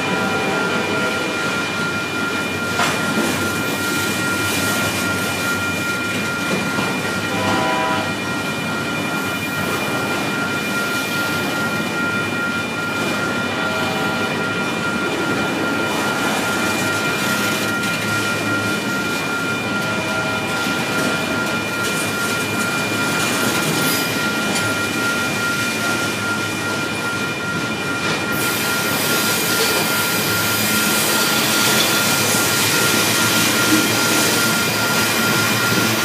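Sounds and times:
freight train wheels clattering on rails: 0.0s - 36.0s
steady high-pitched tone: 0.0s - 36.0s.

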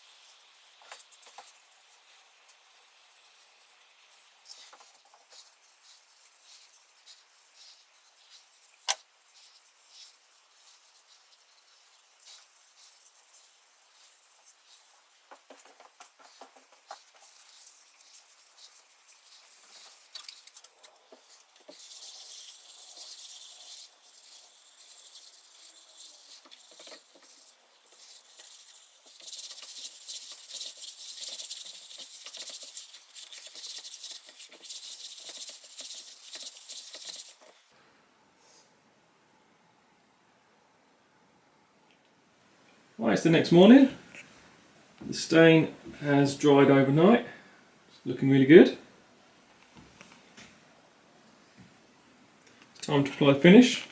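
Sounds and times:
cloth rag rubbing wood: 0.0s - 37.7s.

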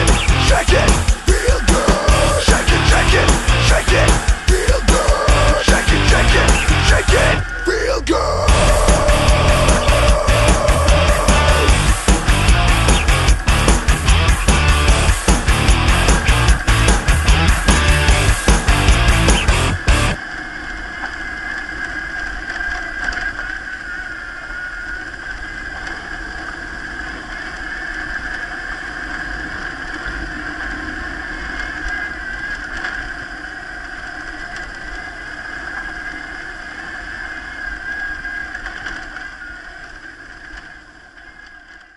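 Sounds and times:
motorcycle engine running: 0.0s - 7.4s, 8.5s - 20.2s
low rumble from gravel road: 0.0s - 41.9s.

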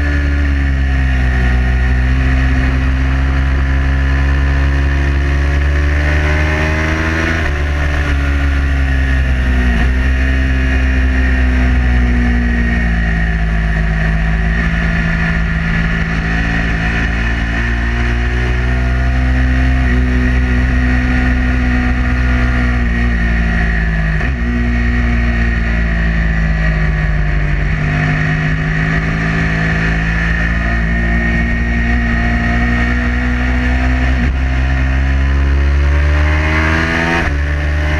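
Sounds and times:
motorcycle engine revving: 0.0s - 37.9s.

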